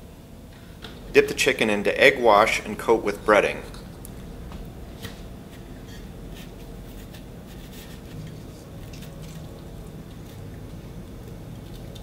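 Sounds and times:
rustling and scratching of breading: 4.9s - 12.0s.

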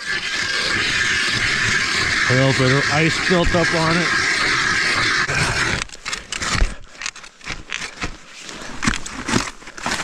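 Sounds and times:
ice auger scraping ice: 0.0s - 10.0s.

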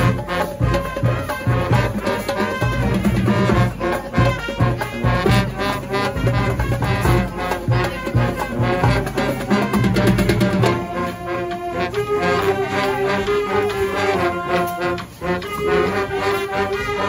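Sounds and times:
marching band playing: 0.0s - 17.0s.

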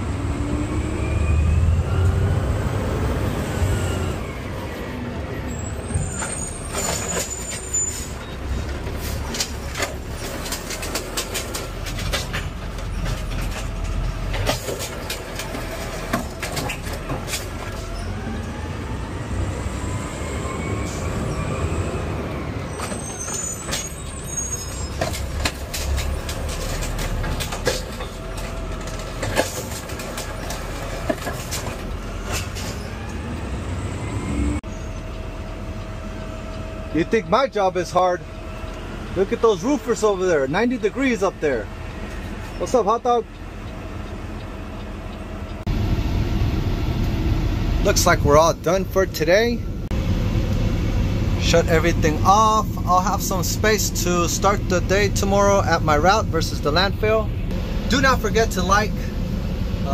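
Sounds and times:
high squeaks: 5.5s - 10.6s, 22.7s - 27.2s
knocks and rattles: 8.6s - 17.9s, 24.9s - 32.8s
truck diesel engine running: 24.8s - 59.9s.

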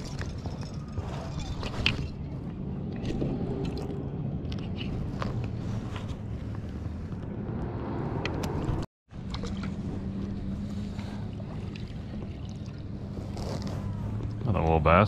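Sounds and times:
handling clicks and scrapes: 0.0s - 7.3s, 13.0s - 14.5s
steady low rumble: 0.0s - 14.6s.

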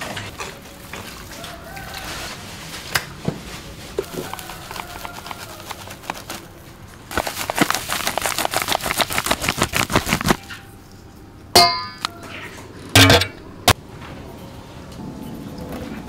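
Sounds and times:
metal spoon rattling in bowl: 4.1s - 6.3s
metal clanging on steel bowl: 11.6s - 12.3s, 13.0s - 13.5s.

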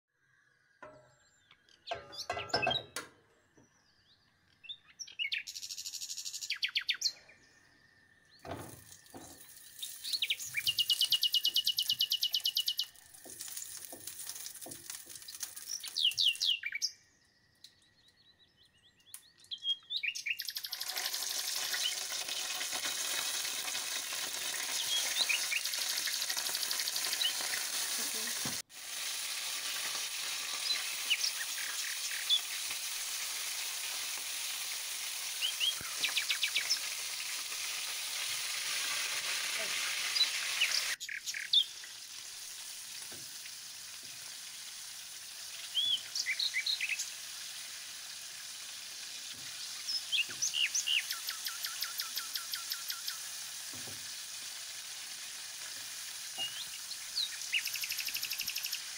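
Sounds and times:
birds chirping: 0.4s - 14.0s, 15.2s - 20.9s, 35.4s - 37.3s, 39.6s - 42.0s, 45.5s - 47.1s, 49.3s - 53.2s, 56.4s - 58.9s
bird trill: 1.1s - 3.0s, 9.8s - 13.0s
meat dropped into hot oil: 8.4s - 10.2s, 13.2s - 16.4s
oil sizzling in a frying pan: 8.4s - 16.6s, 20.3s - 58.9s.

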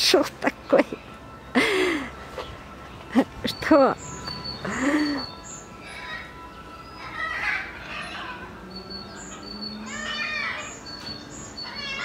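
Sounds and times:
small birds chirping: 0.0s - 12.0s
wavering bird call: 3.5s - 12.0s.

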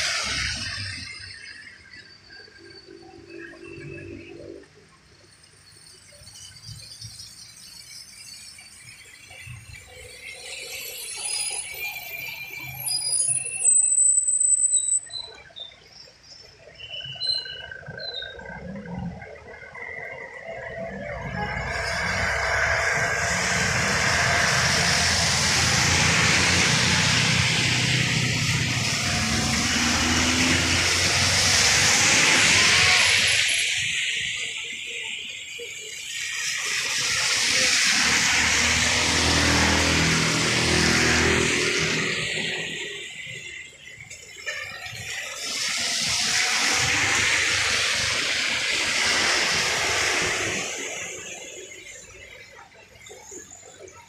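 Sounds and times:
tyres hissing on wet road: 0.0s - 2.0s, 20.4s - 54.0s
car engine hum: 21.7s - 33.4s.

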